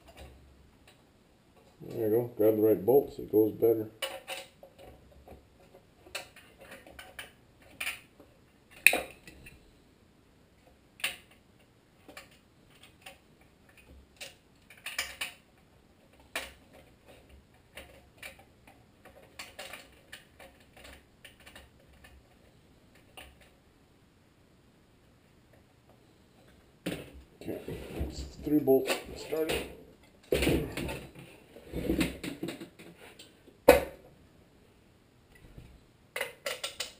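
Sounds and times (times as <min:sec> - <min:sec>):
metallic clicks of bolts: 0:36.2 - 0:36.9.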